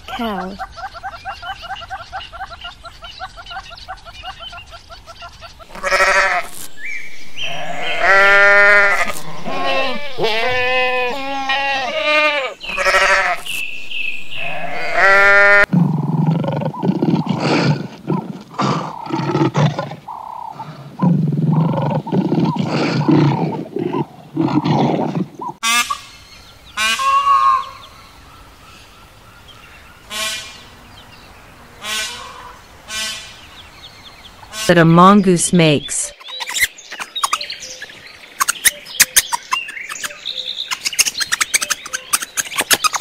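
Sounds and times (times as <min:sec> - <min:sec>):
peacock calling: 0:00.0 - 0:15.7, 0:20.0 - 0:31.1, 0:31.7 - 0:34.9, 0:36.1 - 0:43.0
wavering bleats: 0:05.7 - 0:06.5, 0:07.4 - 0:13.6, 0:14.4 - 0:16.0
lion roars and grunts: 0:15.7 - 0:25.6.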